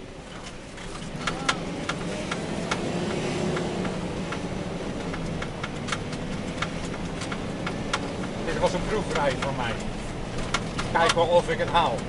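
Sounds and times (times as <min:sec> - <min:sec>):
truck engine hum: 0:00.0 - 0:12.0
sharp clicks and rattles: 0:00.3 - 0:12.0.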